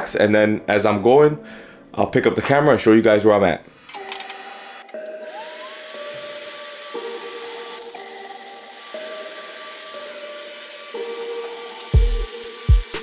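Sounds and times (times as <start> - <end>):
motor whine: 3.8 - 13.0.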